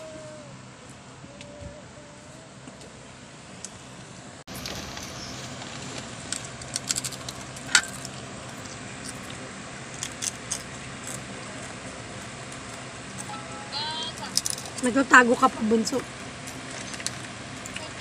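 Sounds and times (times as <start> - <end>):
low steady hum: 0.0 - 18.0
chips being crunched: 5.7 - 8.2, 9.0 - 11.3.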